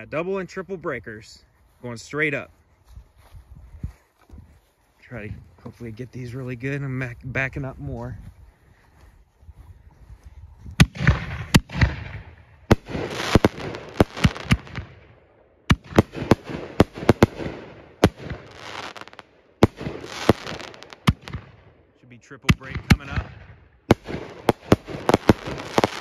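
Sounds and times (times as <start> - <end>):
firework shells booming overhead: 10.8 - 21.8, 22.5 - 26.0.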